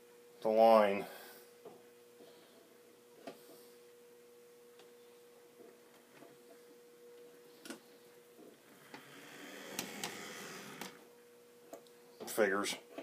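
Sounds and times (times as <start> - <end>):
faint steady hum: 0.0 - 13.0
model train motor running: 8.8 - 11.0.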